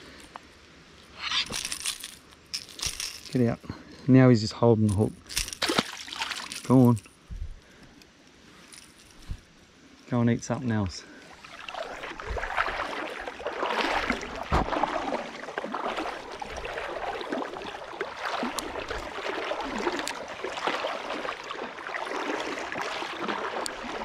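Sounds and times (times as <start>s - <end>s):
small splashes and clicks: 4.8s - 7.2s, 11.2s - 24.0s
water sloshing around wading legs: 4.9s - 7.2s, 11.1s - 24.0s.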